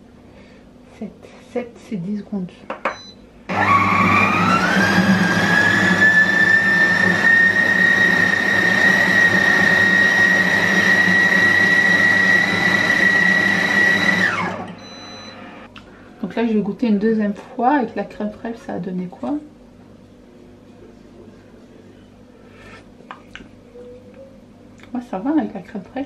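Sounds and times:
blender motor whine: 3.5 - 15.7.

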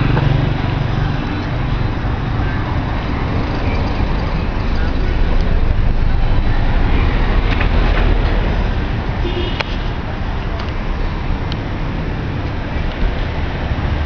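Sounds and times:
passing vehicles: 0.0 - 14.0.

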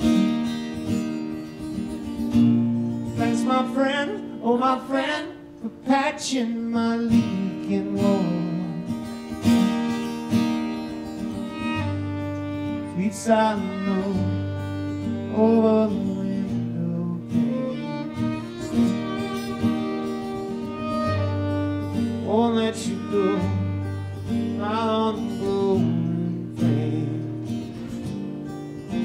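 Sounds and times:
acoustic guitar strumming: 0.0 - 29.0
man singing: 3.2 - 9.0, 12.7 - 20.0, 22.1 - 27.9
fiddle bowing: 7.4 - 25.7.

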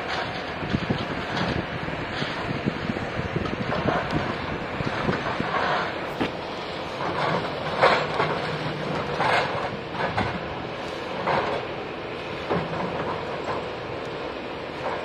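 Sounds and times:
excavator diesel engine under load: 0.0 - 15.0.

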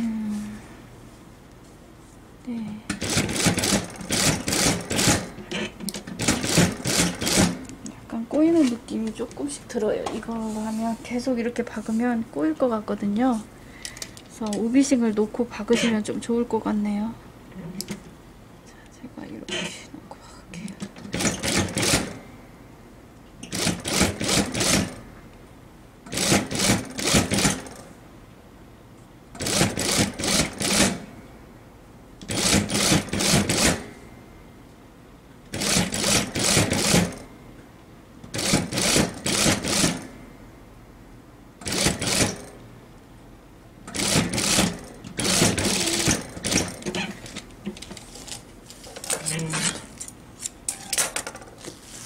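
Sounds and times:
sewing machine stitching: 3.0 - 7.6, 21.1 - 22.1, 23.4 - 25.0, 26.1 - 27.8, 29.4 - 31.0, 32.3 - 33.8, 35.5 - 37.2, 38.3 - 40.1, 41.6 - 42.5, 43.9 - 47.4.

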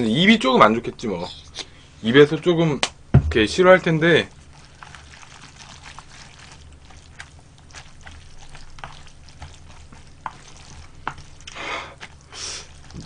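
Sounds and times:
low steady hum: 0.0 - 13.0
wet squishing of noodles: 3.7 - 13.0.

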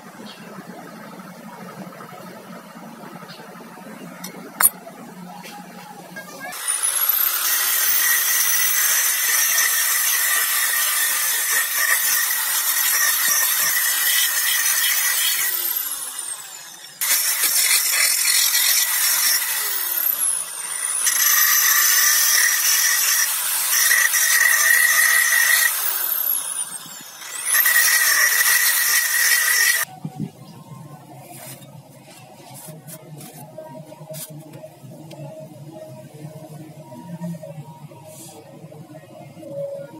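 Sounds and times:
drill motor whine: 6.5 - 29.9
grinding disc on steel blade: 6.5 - 29.9.

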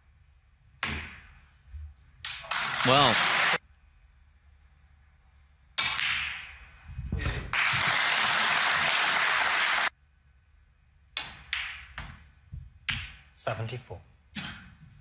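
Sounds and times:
audience applause: 2.4 - 3.6, 7.6 - 9.9.

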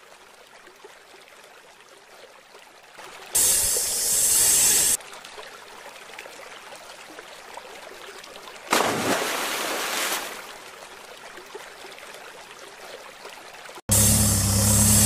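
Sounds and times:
water lapping at shore: 4.9 - 14.6.

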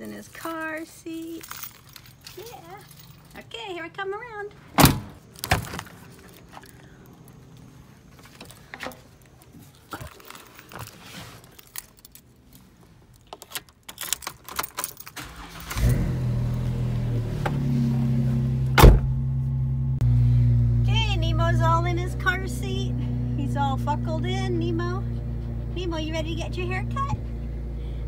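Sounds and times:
keys jangling: 0.2 - 3.4, 9.7 - 15.7
car engine starting and idling: 15.0 - 28.0.

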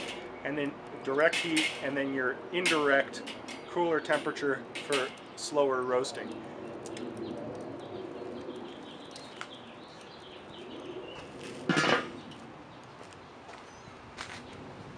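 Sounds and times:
birds calling faintly: 0.0 - 14.7
metal grill lid clattering: 1.2 - 2.0, 2.6 - 5.4, 11.6 - 12.4.

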